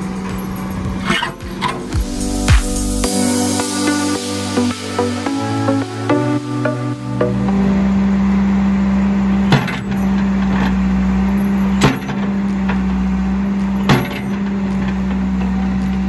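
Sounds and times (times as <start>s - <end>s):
diesel engine running: 7.4s - 16.0s.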